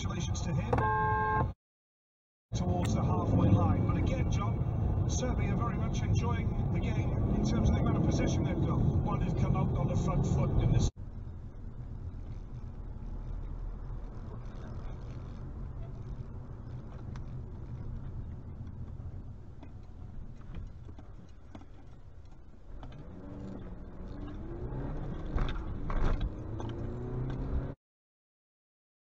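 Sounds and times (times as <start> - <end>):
car engine and road noise: 0.0 - 1.6, 2.5 - 27.8
engine note rising and falling: 2.6 - 10.9, 22.7 - 27.8.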